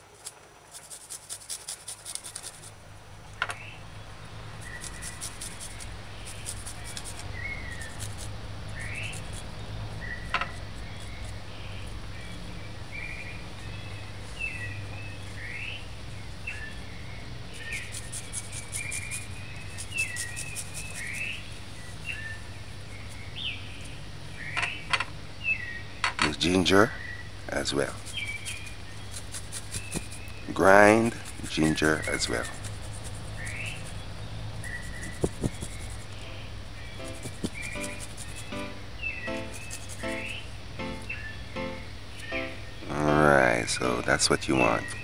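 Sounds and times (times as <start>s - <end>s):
garlic scraping on metal grater: 0.7s - 2.6s.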